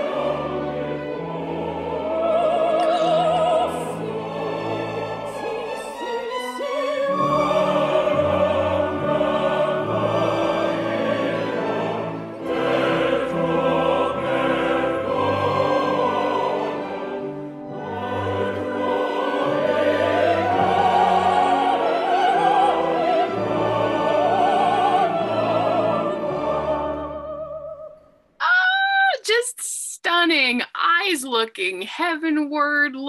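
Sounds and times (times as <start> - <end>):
orchestra playing: 0.0 - 27.7
chorus singing: 0.0 - 28.2
woman singing opera: 1.4 - 12.0, 17.9 - 29.2.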